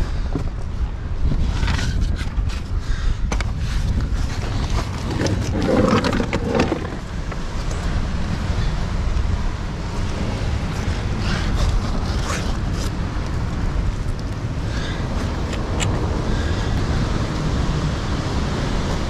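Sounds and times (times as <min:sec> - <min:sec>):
wind buffeting microphone: 0:00.0 - 0:19.0
scrapes and knocks against rock: 0:01.4 - 0:07.8
rustling scrape: 0:03.7 - 0:07.1.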